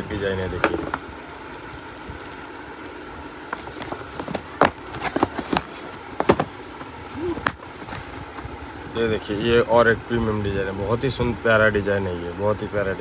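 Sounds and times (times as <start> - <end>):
room hum: 0.0 - 13.0
cardboard boxes handled: 0.6 - 8.6.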